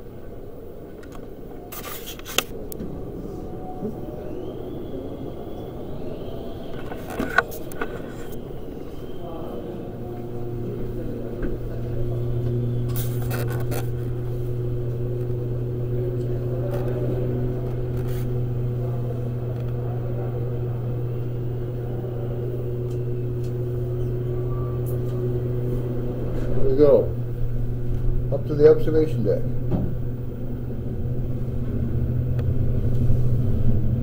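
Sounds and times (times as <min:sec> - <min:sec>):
machinery hum: 0:00.0 - 0:34.0
fixed higher tones: 0:13.9 - 0:34.0.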